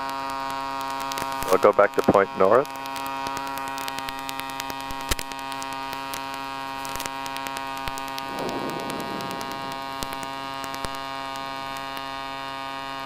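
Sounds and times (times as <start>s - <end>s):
drone engine and rotor humming: 7.8s - 10.9s.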